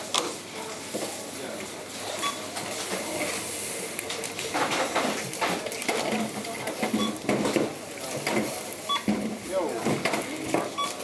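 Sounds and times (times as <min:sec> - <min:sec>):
barcode scanner beep: 0:02.2 - 0:02.4, 0:07.0 - 0:07.2, 0:08.9 - 0:09.1
goods clattering at checkout: 0:04.0 - 0:11.0.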